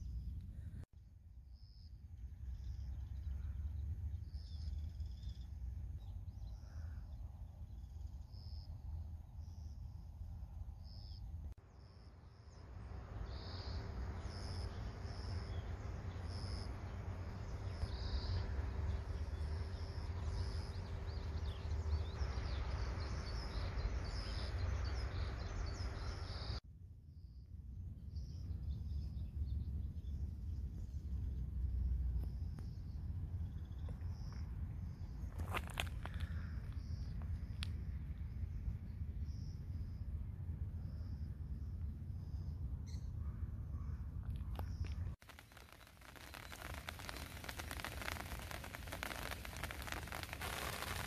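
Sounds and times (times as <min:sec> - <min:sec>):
low steady rumble: 0:00.0 - 0:35.4
faint steady hum: 0:00.0 - 0:51.0
even hiss: 0:11.7 - 0:26.6, 0:45.2 - 0:51.0
small animals chirping: 0:45.3 - 0:51.0.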